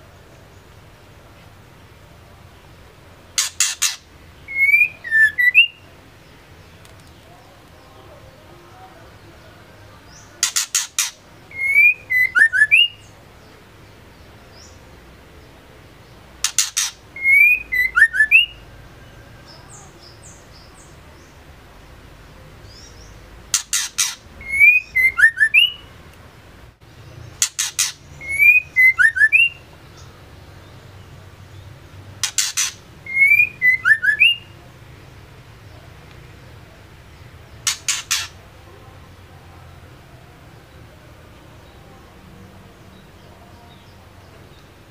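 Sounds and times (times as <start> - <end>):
bird calling with whistled notes: 3.4 - 5.8, 10.1 - 13.1, 16.4 - 18.7, 22.7 - 25.9, 27.4 - 30.1, 32.2 - 34.6, 37.6 - 38.4.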